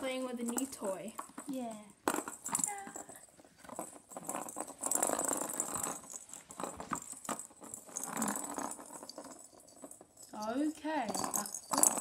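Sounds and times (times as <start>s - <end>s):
balls rattling around plastic track: 0.0s - 12.0s
light jingling: 0.0s - 12.0s.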